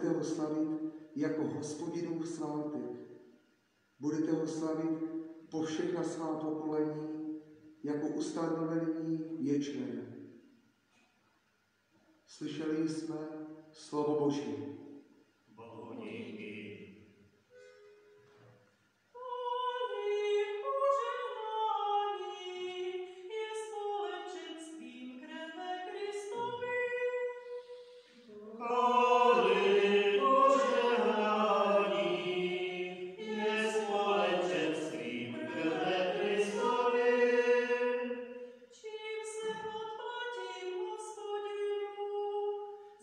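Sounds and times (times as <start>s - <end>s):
fuller choral passage: 15.6s - 17.9s, 25.5s - 42.6s.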